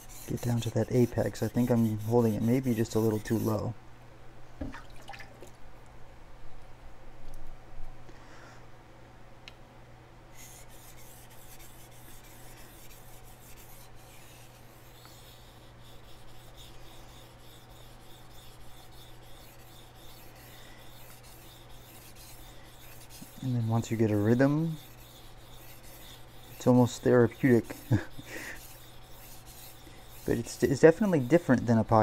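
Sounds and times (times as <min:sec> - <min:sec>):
knife scraping on whetstone: 0:00.0 - 0:03.7, 0:10.4 - 0:32.0.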